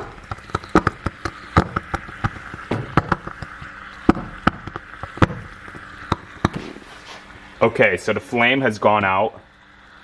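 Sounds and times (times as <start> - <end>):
sharp crackles and pops: 0.0 - 7.4
steady gas hiss: 0.0 - 10.0.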